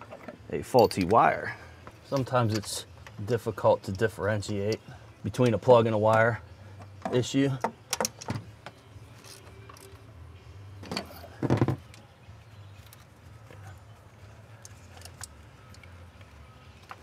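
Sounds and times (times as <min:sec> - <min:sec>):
tools clicking and knocking: 0:06.8 - 0:08.4.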